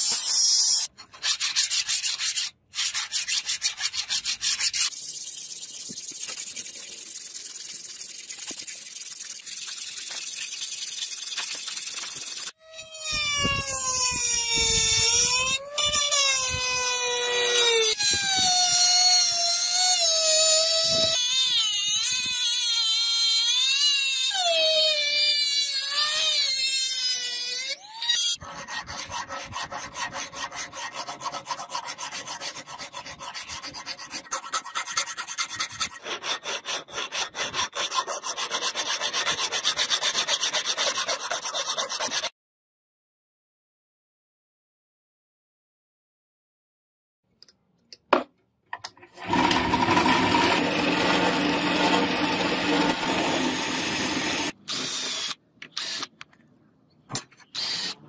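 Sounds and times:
hand file rasping on steel: 0:28.4 - 0:42.3
rotary tool grinding steel: 0:49.2 - 0:56.1.

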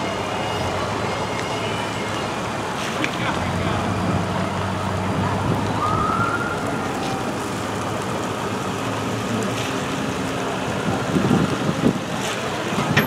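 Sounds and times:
truck engine running: 0:00.0 - 0:13.0
siren whoop: 0:05.6 - 0:07.6.

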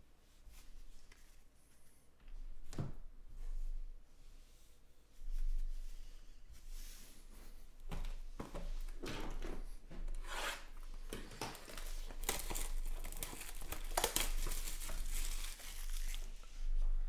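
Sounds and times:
plastic shrink wrap crinkling and tearing: 0:11.3 - 0:16.5.

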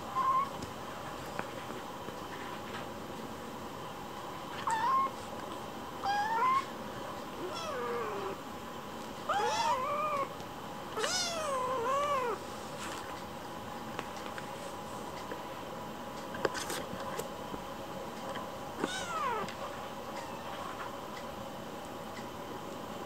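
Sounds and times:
kitten meowing: 0:04.6 - 0:05.1, 0:06.0 - 0:06.7, 0:07.4 - 0:08.4, 0:09.3 - 0:10.3, 0:11.0 - 0:12.4, 0:18.8 - 0:19.5.

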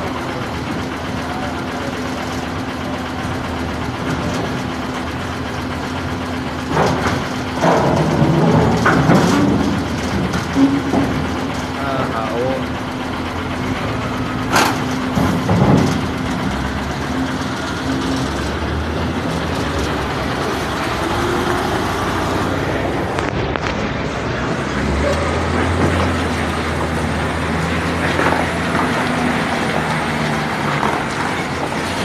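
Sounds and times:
diesel truck engine running: 0:00.0 - 0:32.0.

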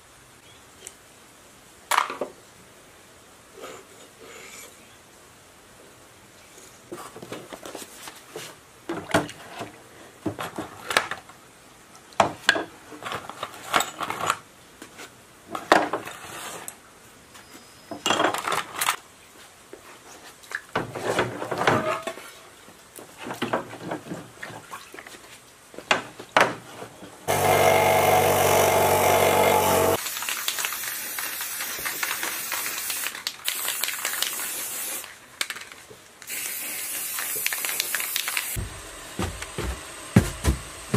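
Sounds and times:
aerosol spray can hissing: 0:30.0 - 0:35.0, 0:36.3 - 0:38.6.

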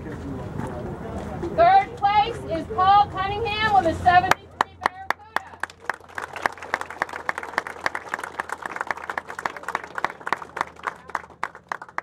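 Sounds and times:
crowd applauding: 0:04.6 - 0:12.0.

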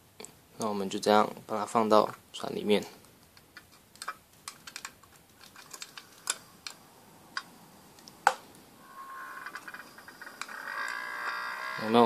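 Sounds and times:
boiler buzzing putter: 0:08.8 - 0:12.0.

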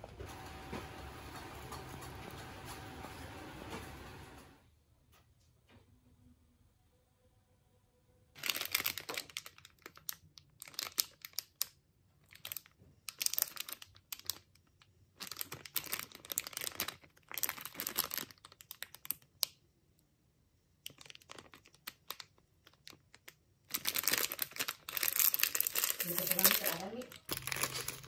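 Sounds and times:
plastic wrapper crinkling: 0:08.4 - 0:19.6, 0:20.8 - 0:28.0.

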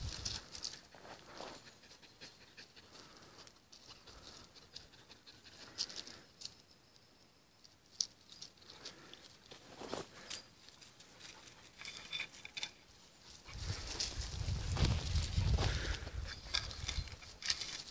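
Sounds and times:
paws scuffing gravel: 0:13.2 - 0:17.9.

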